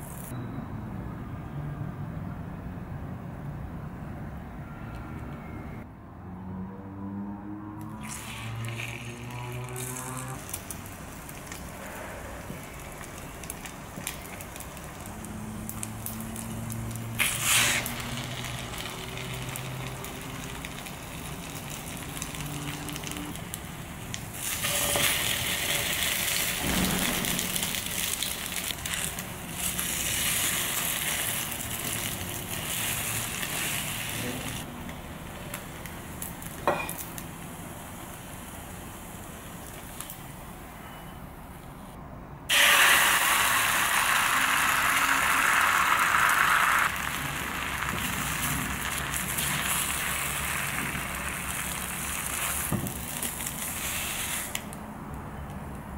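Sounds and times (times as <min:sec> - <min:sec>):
bread sizzling in oil: 0:12.5 - 0:34.6, 0:42.5 - 0:54.6.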